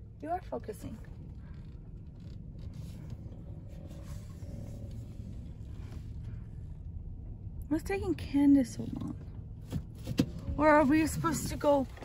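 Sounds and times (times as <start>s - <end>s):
car engine rumble inside cabin: 0.0s - 12.0s.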